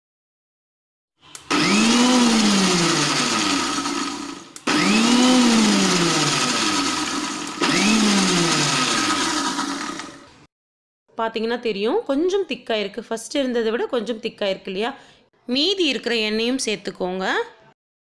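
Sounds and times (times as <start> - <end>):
mixer grinder motor pulsing: 1.2 - 10.5.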